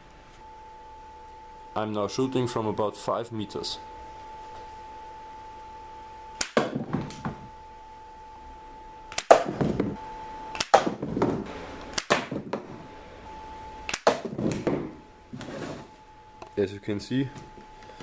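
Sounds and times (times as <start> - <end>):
slingshot snap and arrow smack: 6.4 - 6.7, 10.6 - 10.9.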